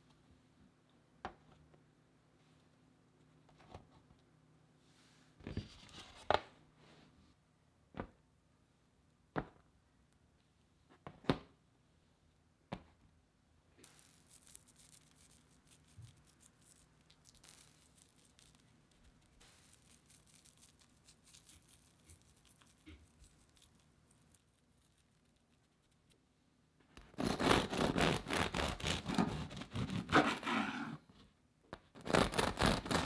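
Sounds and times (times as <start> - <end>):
dried herbs rustling between fingers: 13.8 - 26.2.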